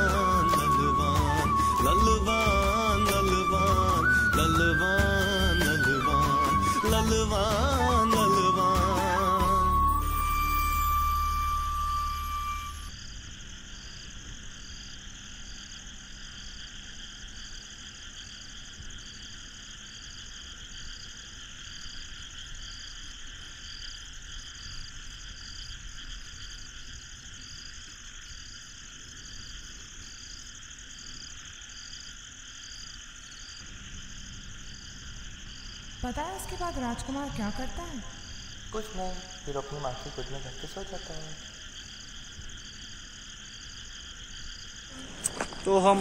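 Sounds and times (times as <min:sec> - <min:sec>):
song: 0:00.0 - 0:12.9
steady high hiss: 0:00.0 - 0:46.0.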